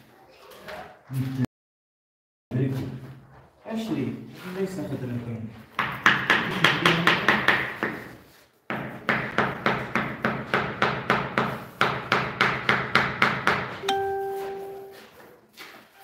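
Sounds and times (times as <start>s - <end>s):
hammer striking wall: 8.7s - 13.8s.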